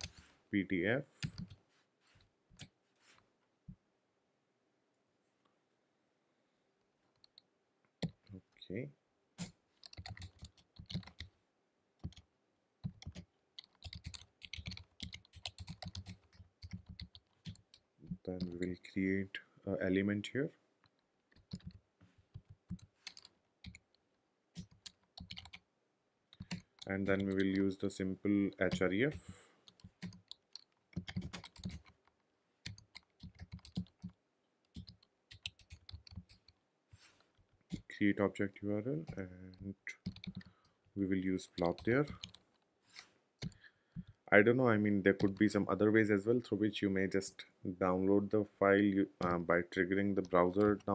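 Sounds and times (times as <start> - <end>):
computer keyboard typing: 9.4 - 11.3, 12.0 - 12.2, 12.8 - 18.7, 21.3 - 23.9, 24.6 - 25.6, 26.3 - 27.6, 28.6 - 36.6, 39.9 - 40.7, 41.4 - 42.5, 45.1 - 45.5.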